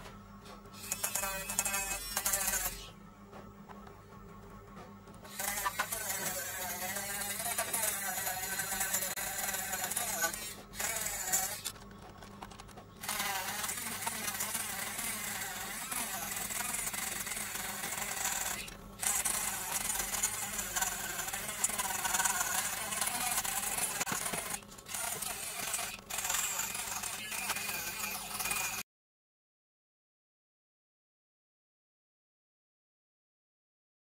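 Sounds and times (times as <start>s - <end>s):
mini grinder motor whine: 0.8s - 2.9s, 5.2s - 11.8s, 13.0s - 28.8s.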